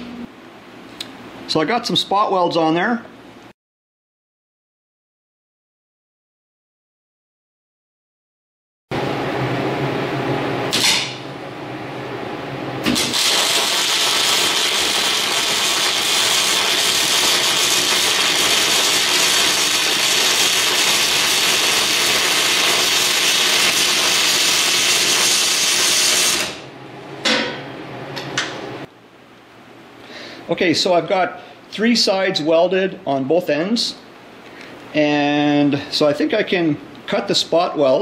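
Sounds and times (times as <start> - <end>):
welding arc crackling hiss: 10.7 - 11.2, 12.8 - 26.7.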